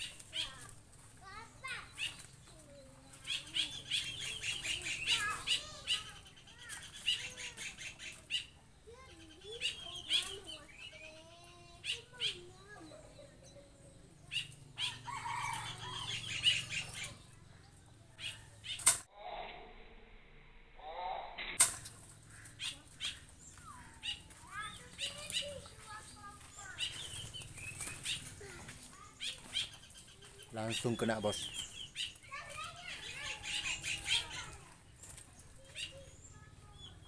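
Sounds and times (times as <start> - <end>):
wings flapping: 0.0 - 10.7, 21.4 - 36.0
bulbuls chattering calls: 0.0 - 19.1, 21.8 - 37.0.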